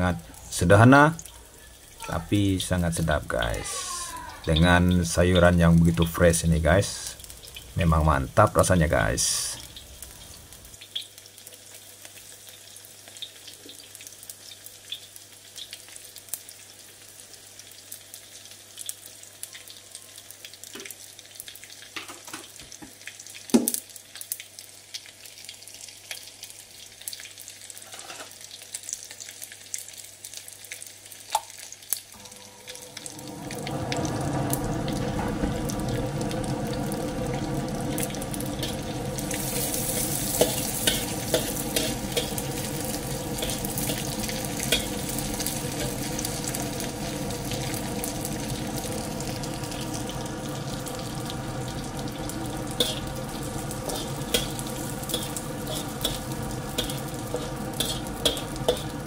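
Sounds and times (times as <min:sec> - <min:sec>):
garlic sizzling in oil: 0:00.0 - 0:59.0
oil crackling and popping: 0:06.9 - 0:07.9, 0:09.0 - 0:59.0
spatula stirring in wok: 0:38.6 - 0:46.8, 0:52.6 - 0:59.0.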